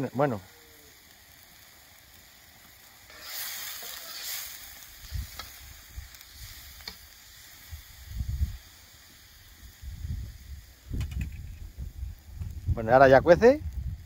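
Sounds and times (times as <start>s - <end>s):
food sizzling in pan: 0.0s - 14.0s
metal spoon stirring in pan: 3.1s - 5.6s.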